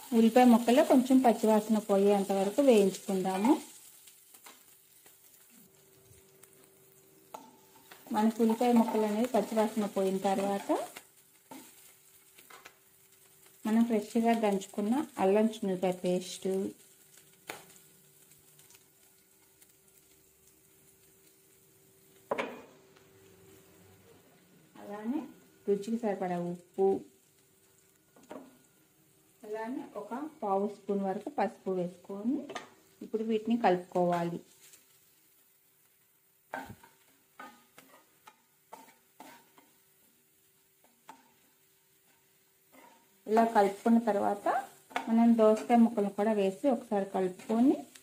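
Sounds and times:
faint frying sizzle: 0:00.0 - 0:48.0
metal spoon scraping a pan: 0:07.2 - 0:12.7, 0:36.5 - 0:39.9, 0:40.8 - 0:45.8.

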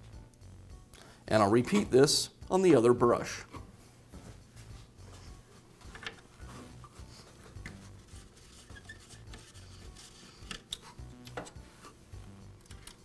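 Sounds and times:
screwdriver handling sounds: 0:05.8 - 0:12.0
power cord scraping and rubbing: 0:06.4 - 0:10.6.

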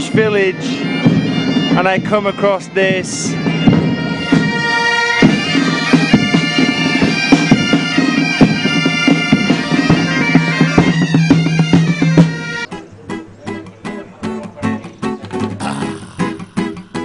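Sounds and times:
bagpipes playing over drone: 0:00.0 - 0:12.7
frame drum beating: 0:00.0 - 0:12.7.

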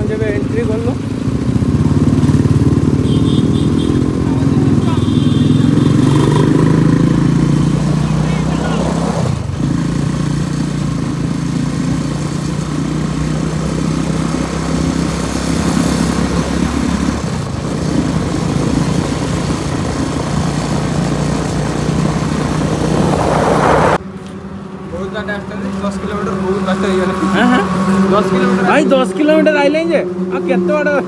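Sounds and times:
motorcycle engine running: 0:00.0 - 0:08.8
road and wind noise: 0:00.0 - 0:31.0.

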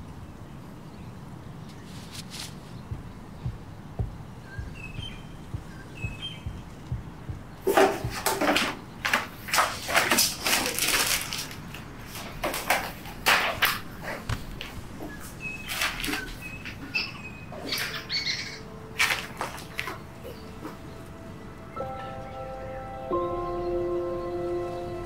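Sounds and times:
faint bird chirps: 0:00.8 - 0:07.7
rustling and clattering objects: 0:01.7 - 0:16.9, 0:18.9 - 0:20.9.

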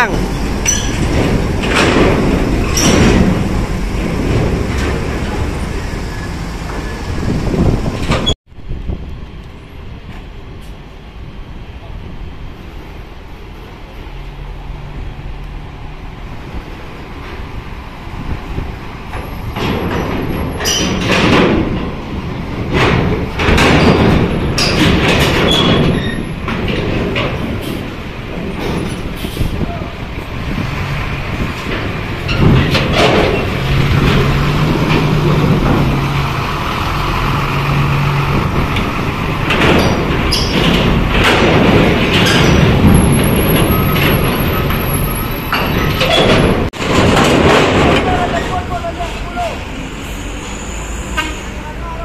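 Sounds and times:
heavy buses rumbling past: 0:00.0 - 0:52.0
metal rattling and clanking: 0:00.1 - 0:08.4, 0:18.5 - 0:29.6, 0:30.2 - 0:49.1
diesel bus engine running: 0:27.4 - 0:46.8.

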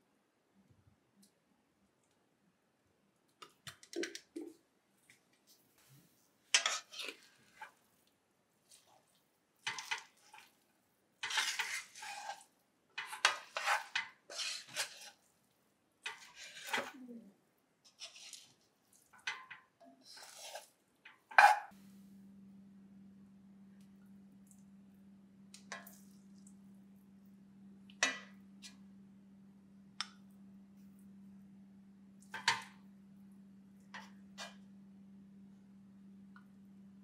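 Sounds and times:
wooden spatula scraping a pot: 0:06.5 - 0:07.8, 0:08.6 - 0:10.6, 0:11.2 - 0:15.3, 0:16.0 - 0:17.1, 0:17.9 - 0:21.8.

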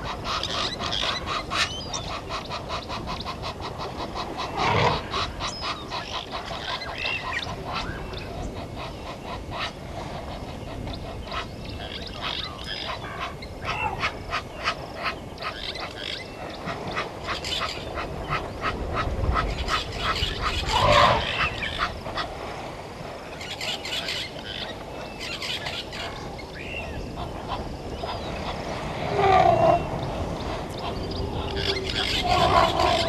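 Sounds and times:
honking animal calls: 0:20.4 - 0:21.9, 0:29.0 - 0:30.0, 0:30.8 - 0:33.0.

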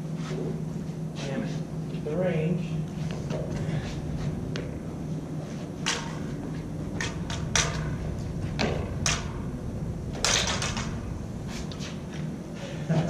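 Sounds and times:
lightsaber blades clashing: 0:04.0 - 0:12.6.

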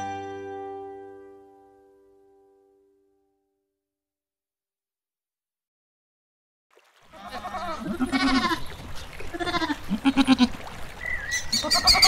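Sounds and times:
wavering bleats: 0:07.1 - 0:10.6, 0:11.5 - 0:12.0.

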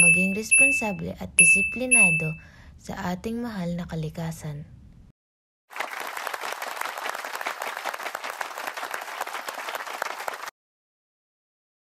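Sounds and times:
crowd applauding: 0:05.7 - 0:10.5.

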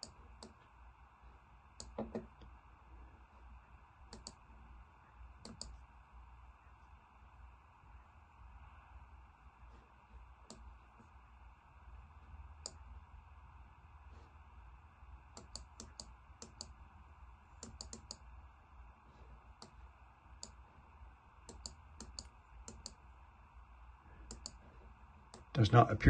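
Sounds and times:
computer mouse clicking: 0:00.0 - 0:00.7, 0:01.8 - 0:02.5, 0:04.1 - 0:04.5, 0:05.4 - 0:05.8, 0:10.4 - 0:10.8, 0:15.3 - 0:16.8, 0:17.6 - 0:18.3, 0:20.4 - 0:20.6, 0:21.4 - 0:23.0, 0:24.2 - 0:24.6
low steady hum: 0:00.0 - 0:26.0.

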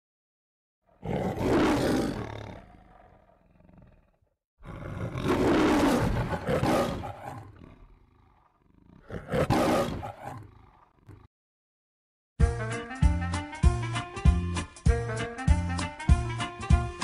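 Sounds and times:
lion roaring: 0:00.9 - 0:11.3.

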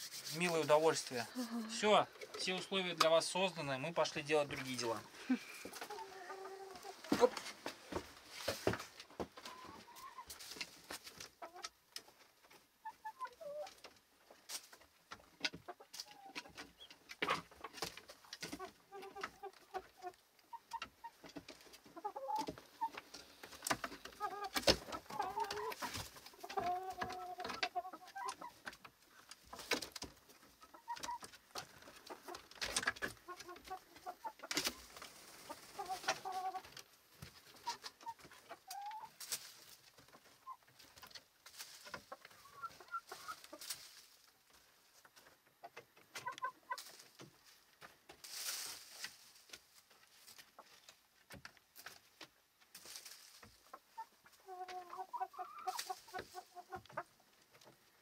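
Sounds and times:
chickens clucking: 0:00.0 - 0:58.0.

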